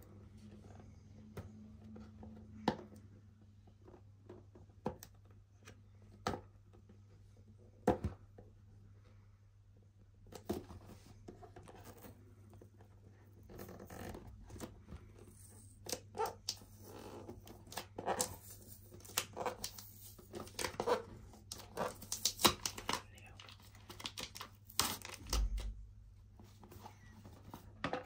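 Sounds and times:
packaging rustling and clicking: 0:15.7 - 0:25.8.

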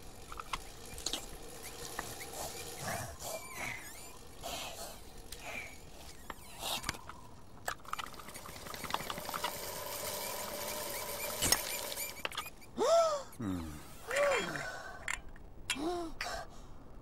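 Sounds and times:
pedal generator bike squeaking: 0:00.0 - 0:12.8.

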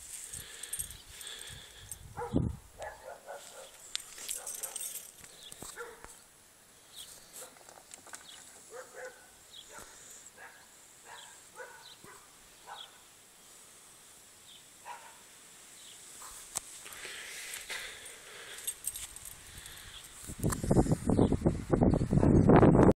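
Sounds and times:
faint dog barking: 0:02.2 - 0:05.0, 0:05.7 - 0:06.2, 0:08.7 - 0:13.1, 0:14.8 - 0:15.3, 0:16.2 - 0:16.5.

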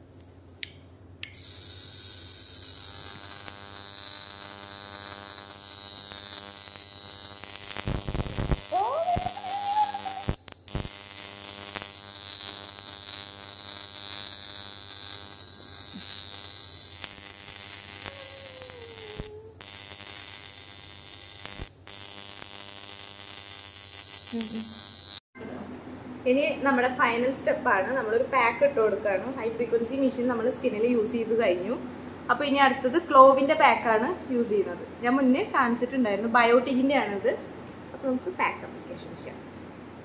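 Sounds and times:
electric facial machine buzzing: 0:00.0 - 0:25.2.

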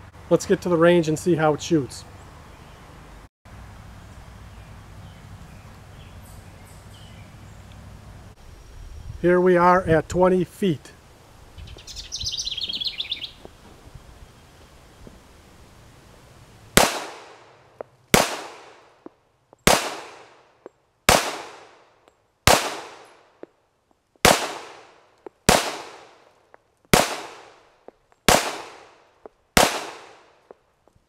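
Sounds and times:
pistol shots: 0:16.8 - 0:17.5, 0:18.1 - 0:18.9, 0:19.6 - 0:20.4, 0:21.1 - 0:21.8, 0:22.5 - 0:23.2, 0:24.2 - 0:26.2, 0:26.9 - 0:27.6, 0:28.3 - 0:29.0, 0:29.6 - 0:30.3.

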